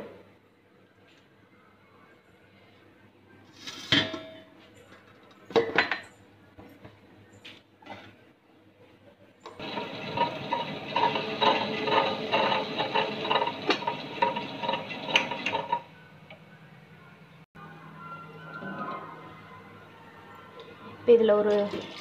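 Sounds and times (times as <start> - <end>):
wet grinder stone rattling: 9.6 - 15.9.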